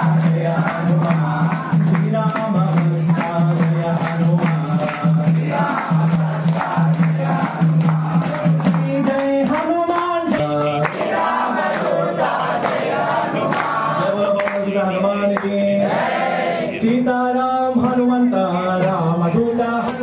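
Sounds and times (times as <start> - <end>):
jingling percussion: 0.0 - 9.7, 19.7 - 20.0
group chanting a hymn: 0.0 - 20.0.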